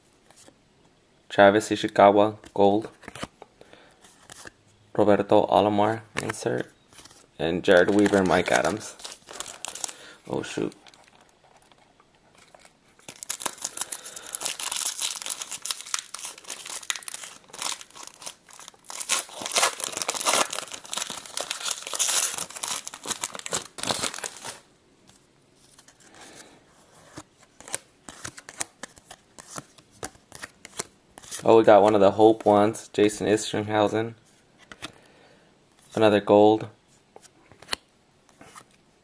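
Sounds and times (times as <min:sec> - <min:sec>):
wrapper tearing and crinkling: 0:07.7 - 0:11.7, 0:12.4 - 0:24.7.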